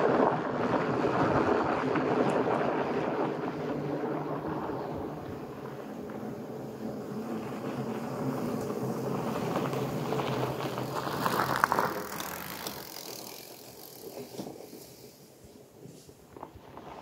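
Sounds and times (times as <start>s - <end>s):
bike tyre rumble on trail: 0.0s - 17.0s.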